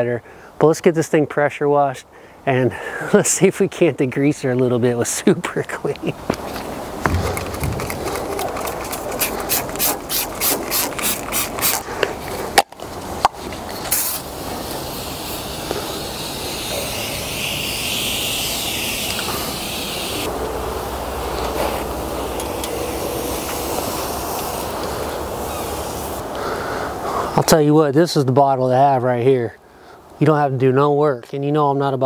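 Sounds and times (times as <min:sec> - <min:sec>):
trigger spray bottle pumps: 0:07.4 - 0:11.8
aerosol spray hissing on metal: 0:13.7 - 0:26.3.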